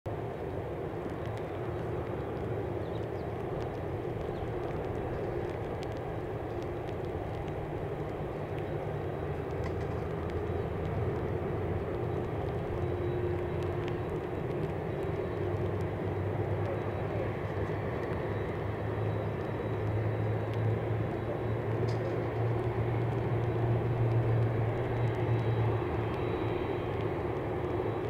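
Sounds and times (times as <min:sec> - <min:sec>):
jet engines taxiing: 0:00.1 - 0:28.0.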